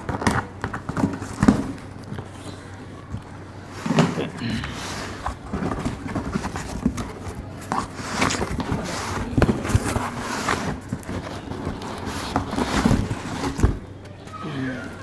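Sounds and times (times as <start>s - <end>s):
cardboard box rustling: 0.0s - 2.4s, 4.8s - 14.1s.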